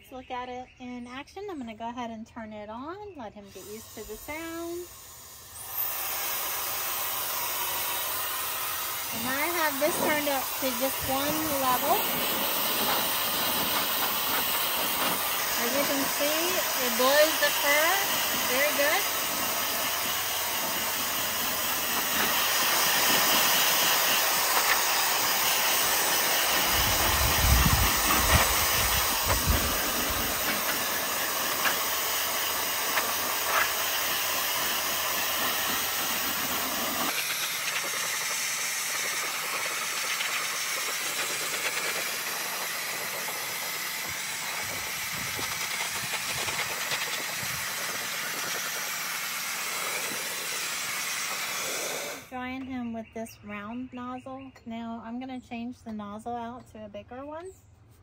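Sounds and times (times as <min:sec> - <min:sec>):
pet dryer blowing air: 0:03.5 - 0:52.3
low rumble of buffeting air: 0:26.6 - 0:30.5.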